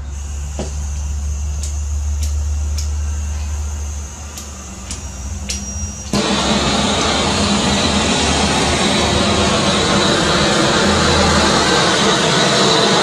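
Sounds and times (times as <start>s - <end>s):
torch flame hissing: 0.0s - 13.0s.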